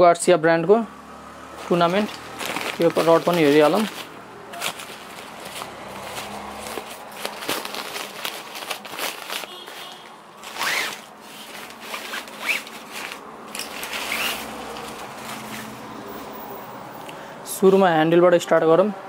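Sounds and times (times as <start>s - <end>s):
rod bag rustling: 1.6s - 16.6s.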